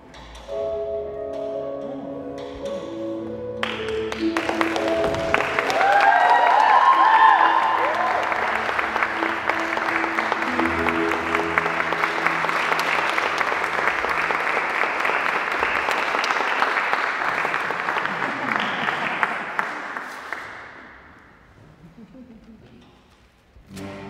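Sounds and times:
held low music notes: 0.0 - 5.7, 7.8 - 14.6, 23.6 - 24.0
audience applauding: 3.6 - 20.9.

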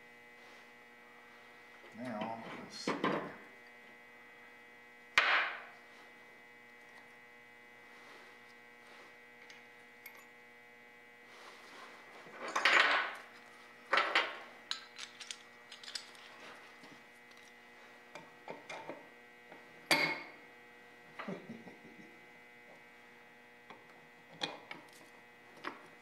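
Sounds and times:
steady electrical hum: 0.0 - 26.0.

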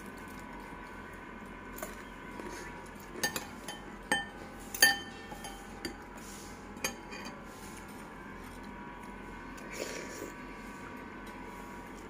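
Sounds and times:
cutlery clinking on ceramic bowl: 3.2 - 6.0.

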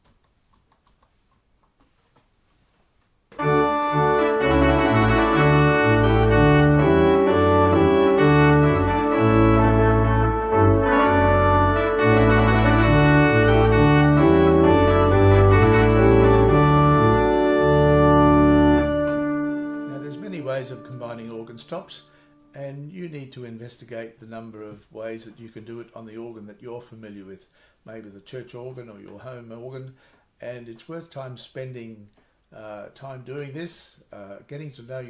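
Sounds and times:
electronic organ melody: 3.4 - 22.5.

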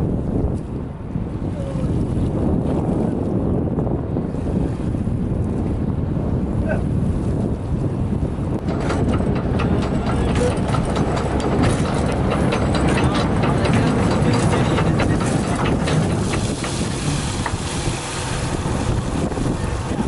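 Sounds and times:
wind buffeting microphone: 0.0 - 20.0
boat engine running: 6.5 - 20.0.

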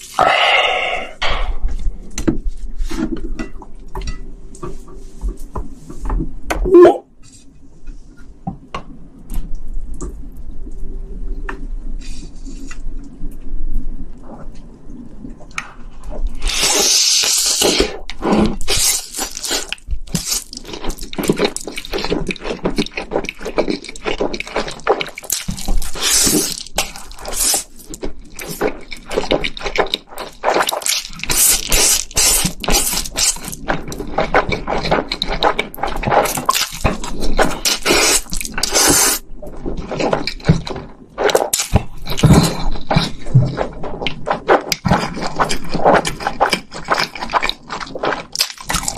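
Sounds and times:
person slurping and chewing noodles: 0.0 - 3.1, 16.0 - 48.9.

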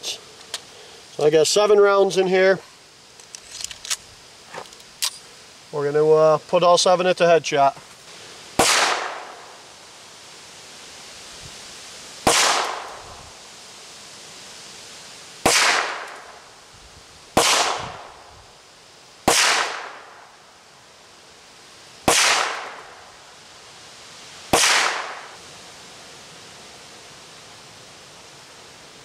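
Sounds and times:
pistol shots: 8.6 - 9.4, 12.3 - 12.9, 15.4 - 16.2, 17.4 - 18.0, 19.3 - 20.1, 22.1 - 22.8, 24.5 - 25.3.

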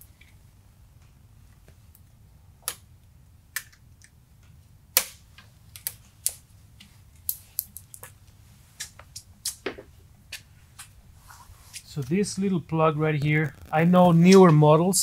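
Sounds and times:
electrical connectors clicking: 3.5 - 11.0.

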